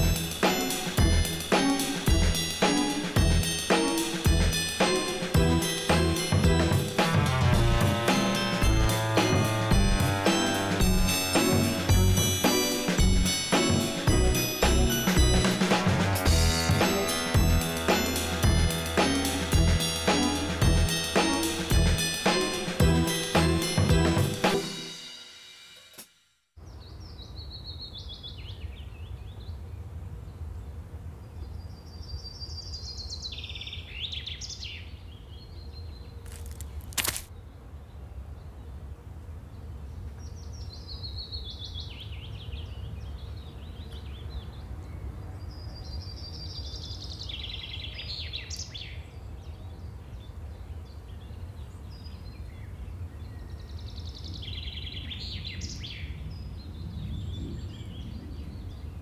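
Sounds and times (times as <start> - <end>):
bird singing: 40.1 - 59.0.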